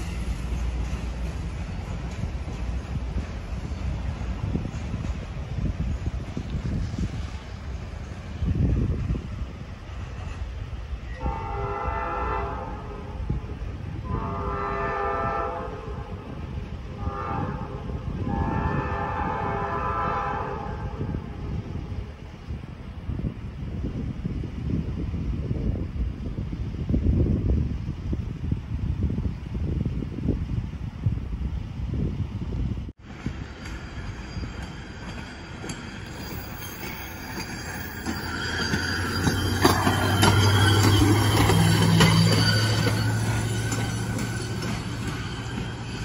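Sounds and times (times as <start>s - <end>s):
truck driving on rail track: 0.0s - 46.0s
wind buffeting microphone: 0.0s - 46.0s
wheels clicking over rail joints: 33.1s - 46.0s.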